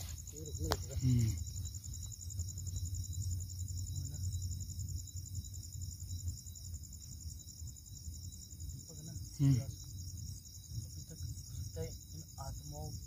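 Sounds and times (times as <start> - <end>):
crickets trilling: 0.0 - 13.0.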